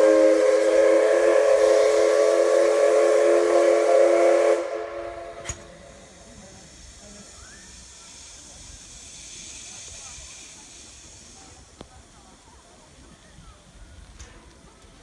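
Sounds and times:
steam locomotive whistle: 0.0 - 6.0
faint hiss of steam: 0.0 - 15.0.

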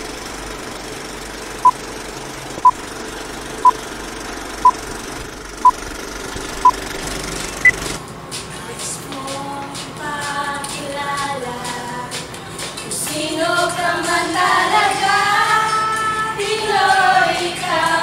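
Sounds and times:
film projector rattle: 0.0 - 8.0.

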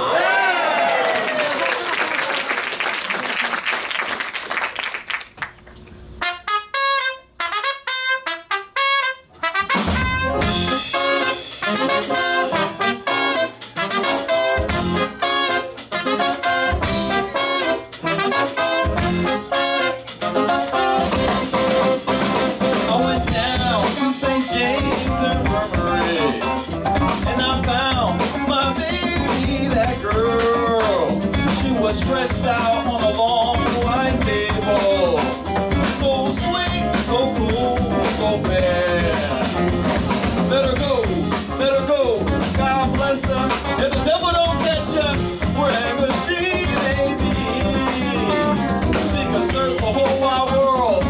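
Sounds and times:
audience applause: 0.0 - 5.8
trumpets and trombones short notes: 6.2 - 27.2, 43.4 - 49.6
full band with drums: 6.2 - 51.0.

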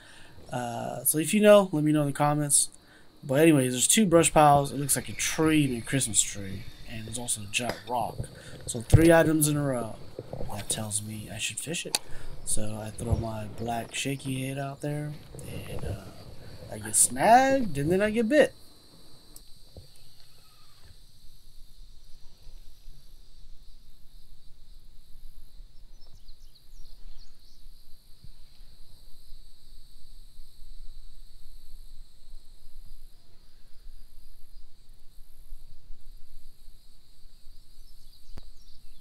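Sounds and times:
insect chorus drone: 0.0 - 39.0
low rumble: 6.0 - 18.2.

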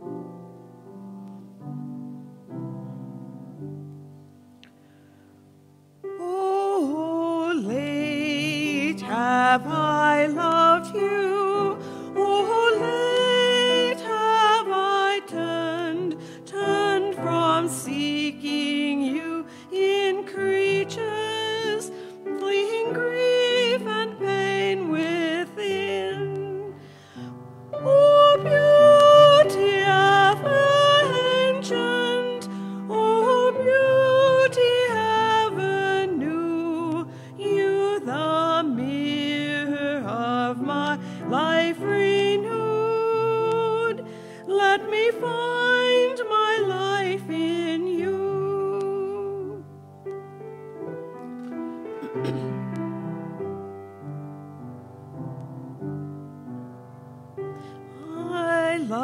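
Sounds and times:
solo voice singing a hymn: 6.0 - 49.7, 57.6 - 59.0.

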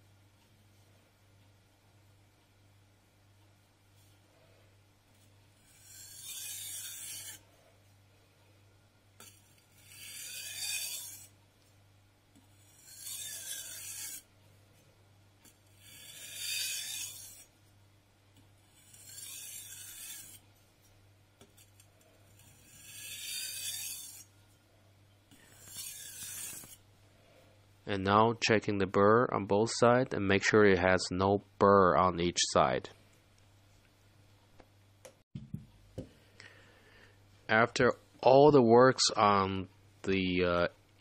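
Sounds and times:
blade scraping on whetstone: 5.6 - 7.5, 9.2 - 11.4, 12.5 - 14.3, 15.7 - 17.5, 18.7 - 20.4, 21.5 - 24.3, 25.4 - 26.8.

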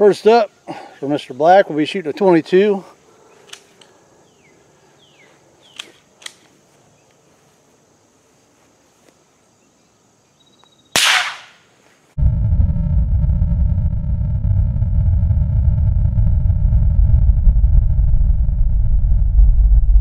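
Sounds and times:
gunshot crack: 11.0 - 11.6.

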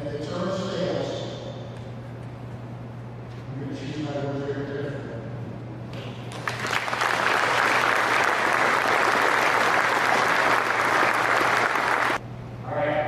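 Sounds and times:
audience applauding: 6.3 - 12.2.

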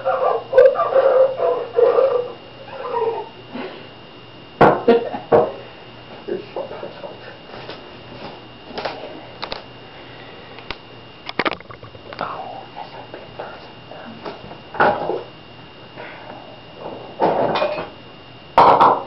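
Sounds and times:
dishes clinking: 17.3 - 18.0.

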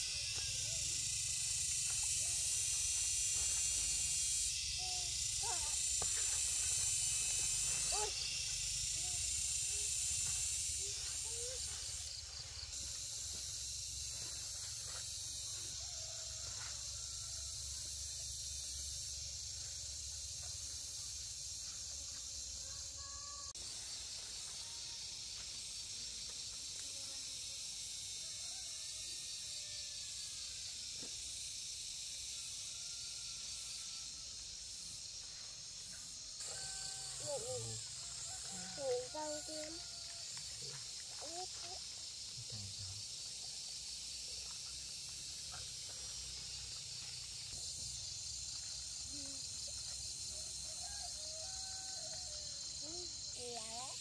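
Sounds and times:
steady high-pitched hiss: 0.0 - 54.0.

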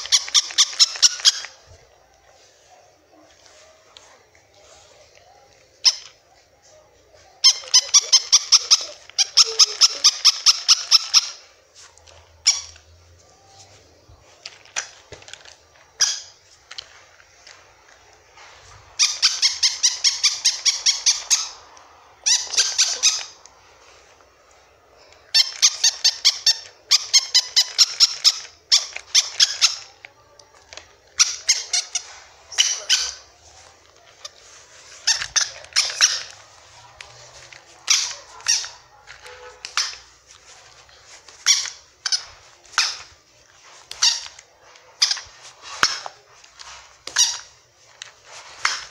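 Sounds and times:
plush toy squeaking: 0.0 - 1.7, 5.3 - 6.2, 7.2 - 12.9, 14.5 - 17.0, 19.0 - 23.5, 25.2 - 30.0, 30.8 - 43.2, 43.8 - 47.6.

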